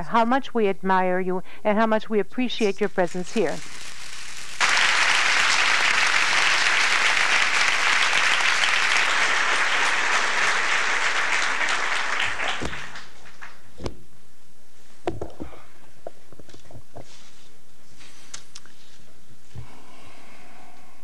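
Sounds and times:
audience applauding: 3.7 - 13.7.

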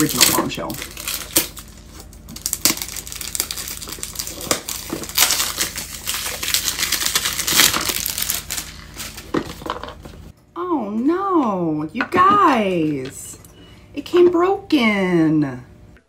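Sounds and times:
cardboard crinkling and scraping: 0.0 - 10.3.

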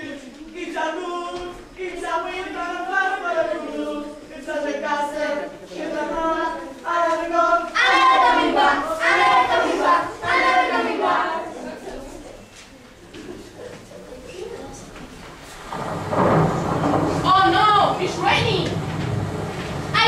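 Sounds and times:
children singing together: 0.0 - 12.2.

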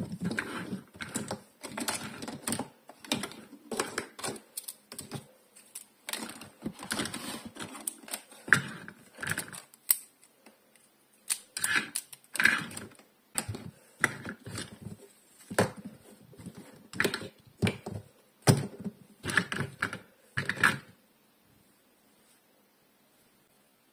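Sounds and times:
plastic toy pieces clicking: 0.3 - 10.3, 11.2 - 14.7.

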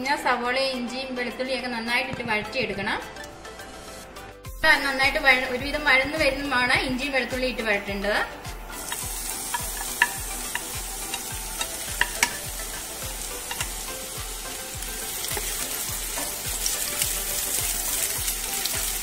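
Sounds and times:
onions sizzling in oil: 8.3 - 19.0
spatula clicking against pan: 8.8 - 12.5, 13.4 - 13.8.

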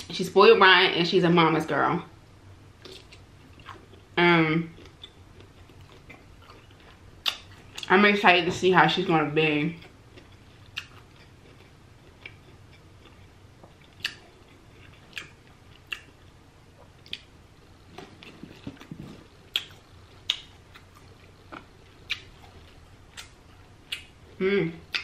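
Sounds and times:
wet mouth smacks and chewing: 10.2 - 16.2, 18.0 - 24.2.

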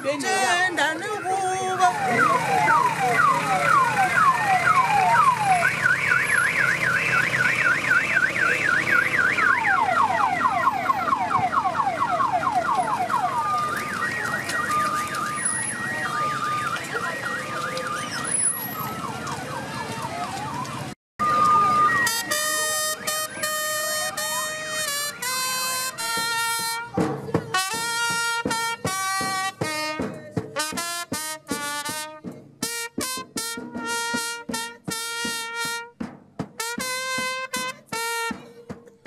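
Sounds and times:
electronic siren: 1.8 - 24.7.

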